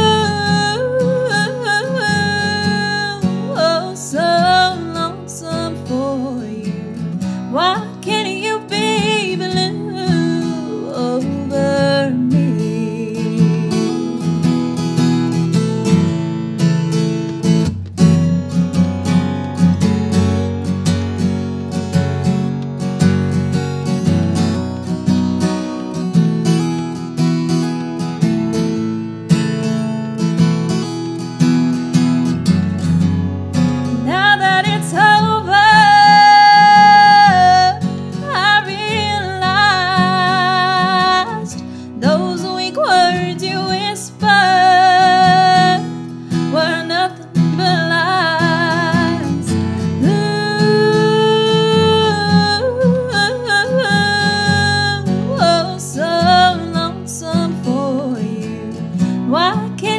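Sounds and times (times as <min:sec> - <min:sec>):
woman singing country song: 0:00.0 - 0:16.2, 0:30.3 - 0:59.9
acoustic guitar strumming: 0:00.0 - 0:59.9.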